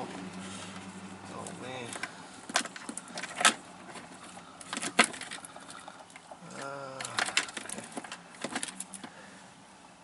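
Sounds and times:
man's voice humming: 0:06.4 - 0:07.2.

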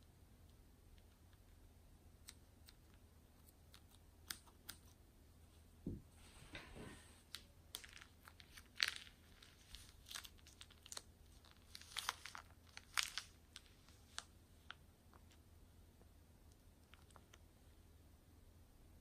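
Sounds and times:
plastic bag of foam beads crinkling: 0:07.2 - 0:15.4, 0:16.8 - 0:17.4.

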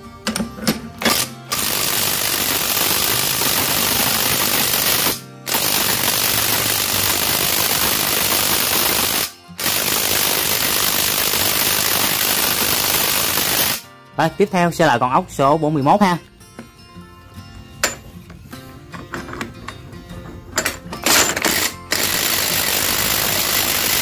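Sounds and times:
impact wrench hammering: 0:00.3 - 0:13.8, 0:17.8 - 0:18.1, 0:20.6 - 0:24.0.

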